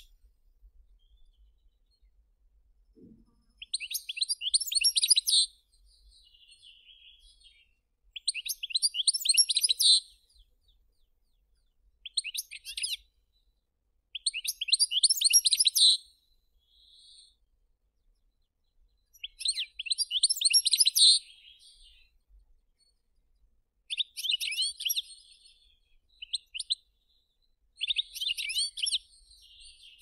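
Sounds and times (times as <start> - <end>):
goldfinch singing: 3.6 - 5.5, 8.2 - 10.1, 12.0 - 13.0, 14.1 - 16.0, 19.1 - 22.1, 23.9 - 25.5, 27.8 - 30.0.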